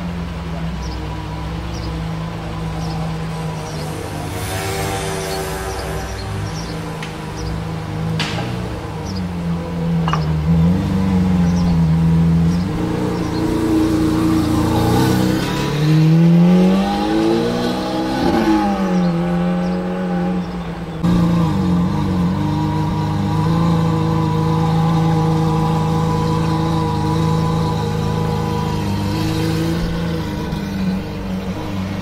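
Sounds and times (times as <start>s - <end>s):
sports car engine running: 19.7s - 32.0s.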